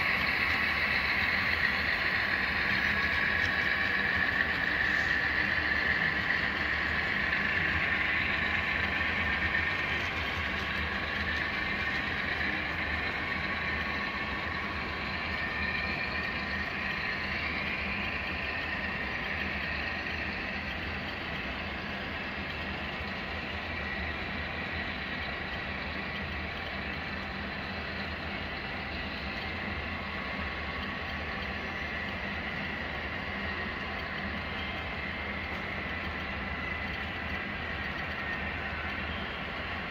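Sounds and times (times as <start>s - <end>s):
model train wheels rolling on rail: 0.0s - 39.9s.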